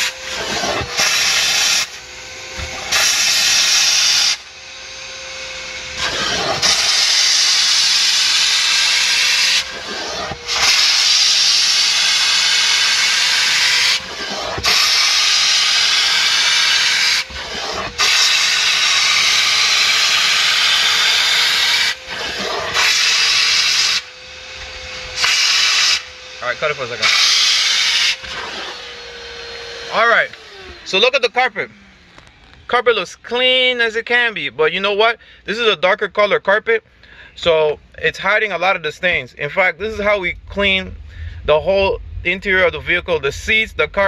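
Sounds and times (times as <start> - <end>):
steam cleaner hissing: 0.0 - 32.0
carpet extractor vacuum whine: 0.0 - 36.2, 36.8 - 44.0.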